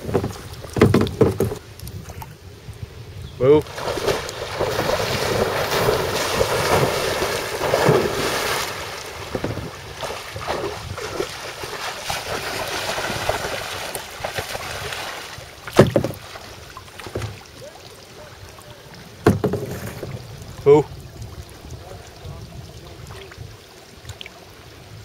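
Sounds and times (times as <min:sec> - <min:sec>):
wind on microphone: 0:00.0 - 0:16.2, 0:19.4 - 0:25.0
water lapping around kayak: 0:00.0 - 0:25.0
water splashing loudly: 0:03.6 - 0:17.8.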